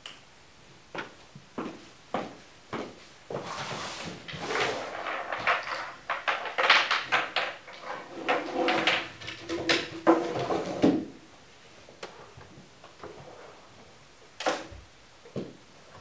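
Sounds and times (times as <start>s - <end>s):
wooden pieces knocking and rattling: 4.2s - 11.0s.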